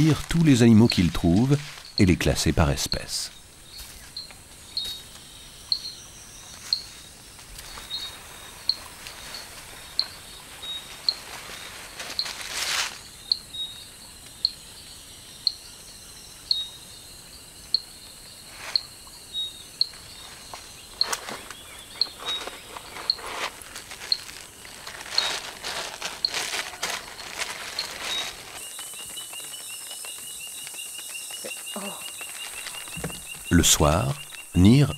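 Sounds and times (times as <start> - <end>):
rustling in dry leaves: 0.0 - 2.3, 6.2 - 13.3, 19.9 - 33.5
steady background hiss: 0.0 - 34.9.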